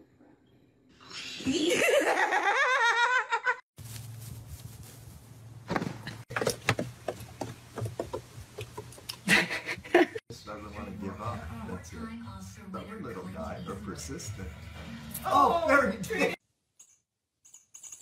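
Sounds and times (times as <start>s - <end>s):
person laughing loudly: 1.5s - 3.6s, 9.2s - 10.2s.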